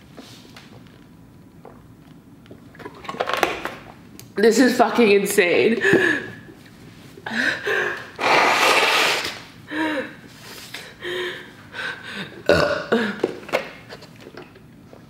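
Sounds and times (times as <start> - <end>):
woman burping: 12.4 - 13.3.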